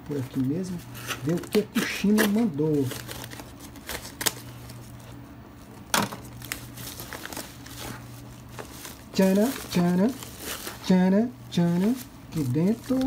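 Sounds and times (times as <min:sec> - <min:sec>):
thin plastic crinkling: 0:00.1 - 0:13.0
scissors snipping plastic: 0:01.0 - 0:04.4.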